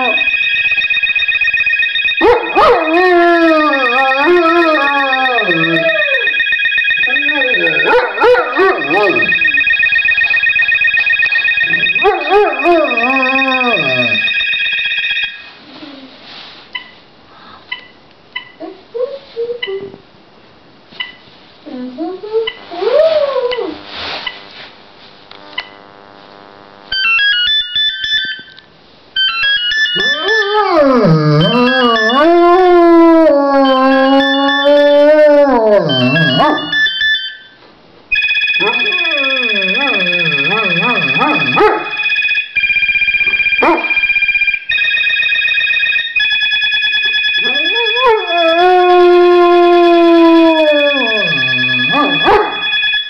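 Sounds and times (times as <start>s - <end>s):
phone ringtone beeping: 0.0s - 15.5s, 26.9s - 28.6s, 29.2s - 30.6s, 31.4s - 32.7s, 33.7s - 35.0s, 35.9s - 48.6s, 50.6s - 53.0s
dog howling: 2.5s - 6.3s, 30.0s - 36.8s, 47.4s - 52.6s
dog yelping: 7.1s - 9.4s, 38.6s - 42.0s.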